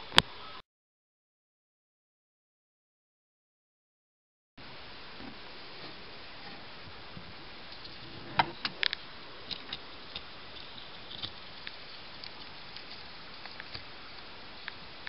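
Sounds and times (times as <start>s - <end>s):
steady hiss: 4.6s - 15.0s.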